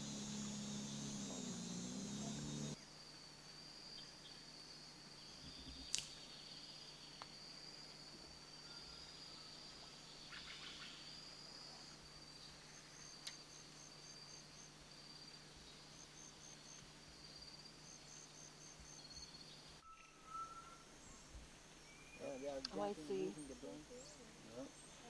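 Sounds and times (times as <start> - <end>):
insect high trill: 0.0 - 2.9
insect short high chirps: 8.6 - 23.4.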